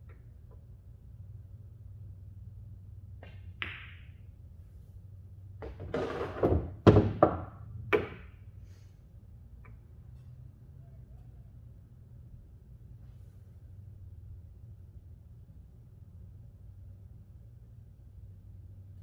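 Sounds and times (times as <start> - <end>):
billiard balls clacking: 3.2 - 4.3, 5.6 - 8.4
ball rolling down return channel: 5.6 - 8.2.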